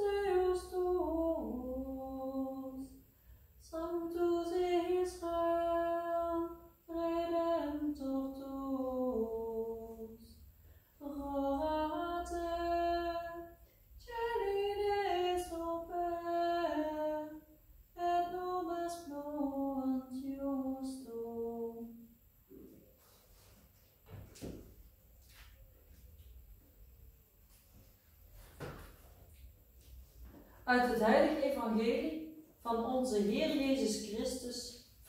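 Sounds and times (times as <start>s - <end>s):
woman singing unaccompanied: 0.0s - 3.0s, 3.6s - 10.4s, 11.0s - 17.4s, 18.0s - 22.0s, 30.7s - 34.7s.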